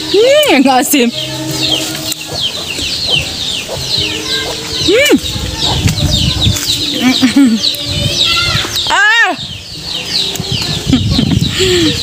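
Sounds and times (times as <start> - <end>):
chickens clucking: 0.0 - 8.9
chicks peeping: 0.0 - 12.0
low rumble of wind: 0.0 - 12.0.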